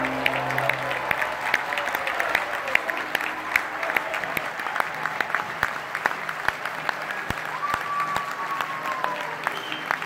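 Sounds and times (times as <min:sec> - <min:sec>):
audience applauding: 0:00.0 - 0:10.0
loud claps close by: 0:00.0 - 0:10.0.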